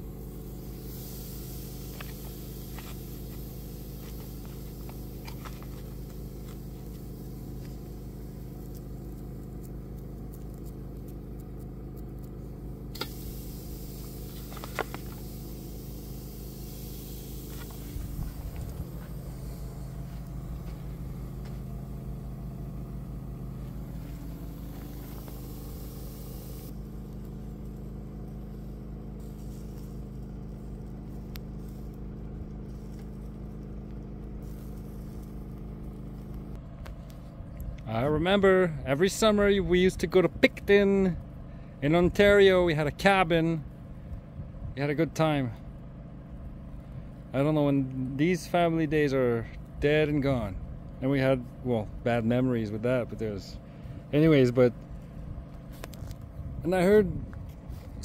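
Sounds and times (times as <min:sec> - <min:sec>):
generator engine hum: 0:00.0 - 0:58.0.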